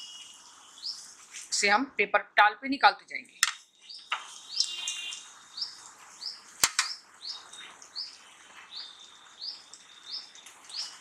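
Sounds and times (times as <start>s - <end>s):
short high bird chirps: 3.9s - 11.0s.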